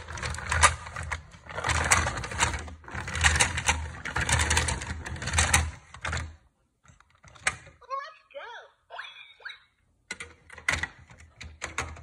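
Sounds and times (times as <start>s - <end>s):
toy train plastic rattling: 0.0s - 6.4s.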